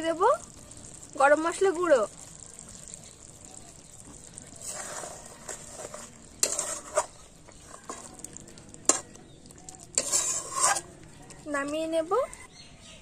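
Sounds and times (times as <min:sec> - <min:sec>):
metal spatula stirring curry: 0:02.2 - 0:12.5.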